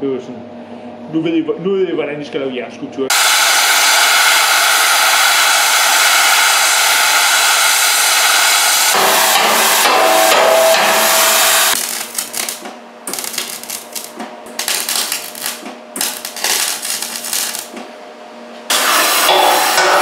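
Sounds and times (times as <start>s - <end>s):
gas torch hissing: 3.1s - 14.1s, 18.7s - 20.0s
electric welder crackling: 3.1s - 17.8s.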